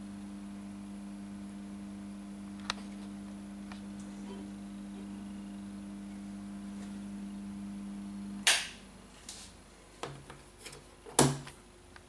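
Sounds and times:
electrical hum: 0.0 - 12.0
loud switch click: 8.4 - 8.8.

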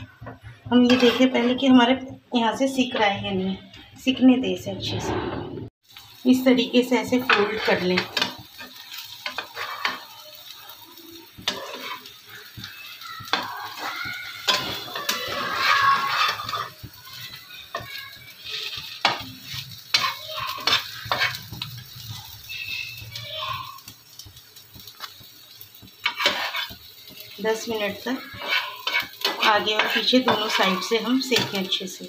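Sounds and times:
oil sizzling: 0.0 - 32.0
spatula scraping frying pan: 0.2 - 1.8, 7.0 - 10.8, 11.4 - 23.0, 25.0 - 32.0.

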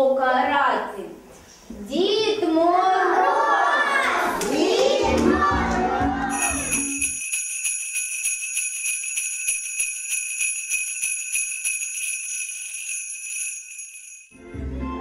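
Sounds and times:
sleigh bells jingling: 6.3 - 14.4.

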